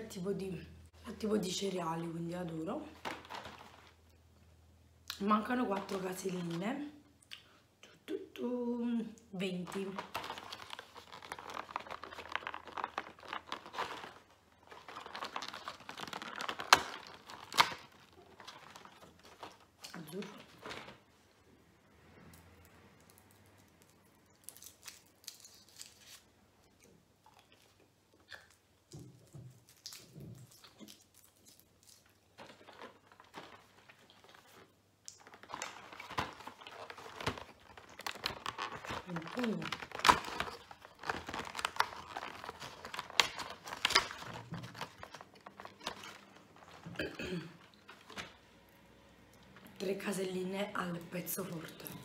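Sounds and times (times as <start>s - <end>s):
wrapper crinkling: 2.8s - 4.1s, 9.4s - 21.1s, 23.0s - 26.3s, 29.2s - 48.4s
soft chewing: 22.4s - 39.1s.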